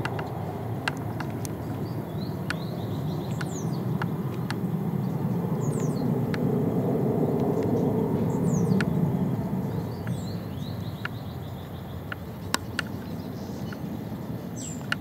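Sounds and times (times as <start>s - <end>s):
sharp ticks: 0.0s - 6.6s, 7.3s - 15.0s
birds chirping: 0.0s - 15.0s
jet engine rumble: 0.0s - 15.0s.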